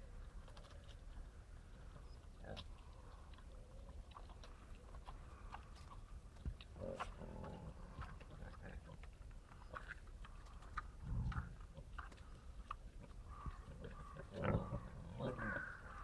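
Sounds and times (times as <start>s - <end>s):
boars rooting and chewing in soil: 0.0s - 16.0s
small crunches and clicks: 0.2s - 1.3s
boar grunt: 6.7s - 9.0s, 11.0s - 11.9s, 13.3s - 16.0s.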